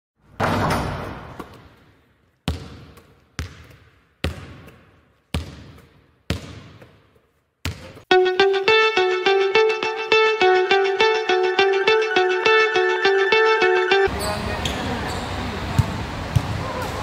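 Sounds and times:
basketball bouncing with echo: 2.4s - 8.1s
guitar music: 8.1s - 14.1s.

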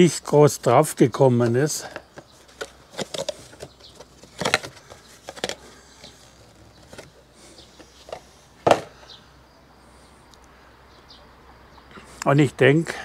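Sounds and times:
cardboard tray crackling: 2.2s - 8.9s.

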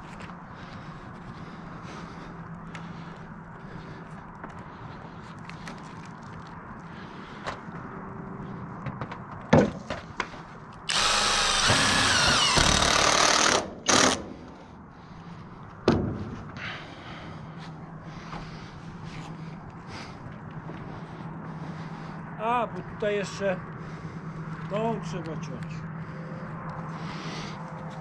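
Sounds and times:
impact driver driving a screw: 10.9s - 14.5s.

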